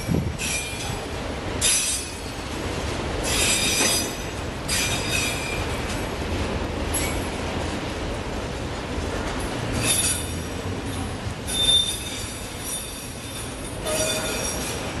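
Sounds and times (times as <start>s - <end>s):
train wheels rumbling on rail: 0.0s - 15.0s
metallic wheel squeals: 11.5s - 14.9s.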